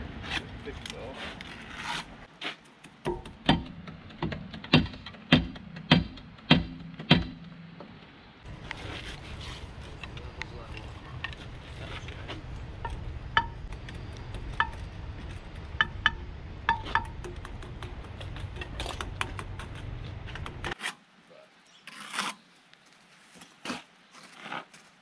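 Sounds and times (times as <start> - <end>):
low rumble: 8.5 - 20.7.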